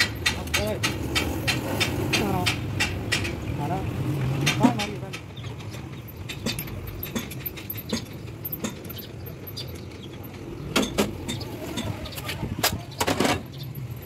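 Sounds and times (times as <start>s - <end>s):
loud metal knocks: 0.0s - 3.6s, 4.4s - 9.1s, 10.7s - 11.9s.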